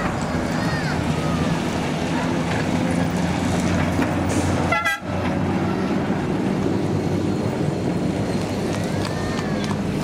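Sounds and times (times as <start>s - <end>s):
trams and road traffic hum: 0.0s - 10.0s.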